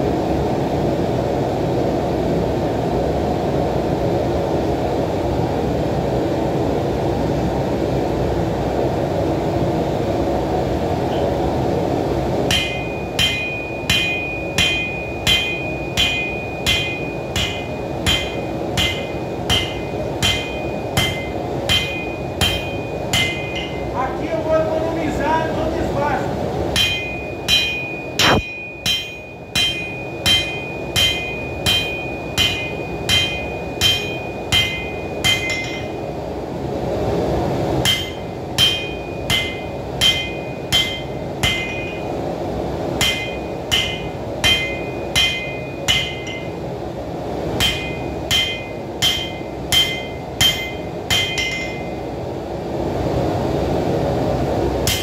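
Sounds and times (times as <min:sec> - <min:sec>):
hammer ringing on anvil: 0:12.5 - 0:24.0, 0:26.8 - 0:36.0, 0:37.8 - 0:42.2, 0:43.0 - 0:46.6, 0:47.6 - 0:52.0.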